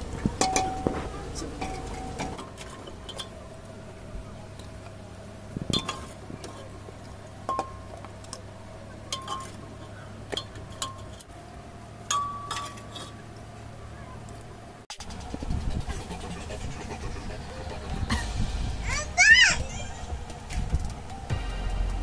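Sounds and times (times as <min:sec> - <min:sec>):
steady low hum: 0:00.0 - 0:22.0
steel ladle clinking on metal: 0:09.1 - 0:09.6, 0:12.1 - 0:13.2.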